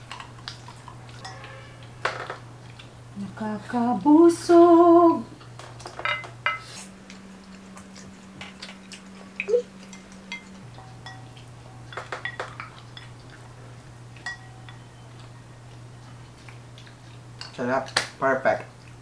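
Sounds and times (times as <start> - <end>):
wooden cutlery clinking on plates: 5.8 - 6.6, 9.8 - 13.3.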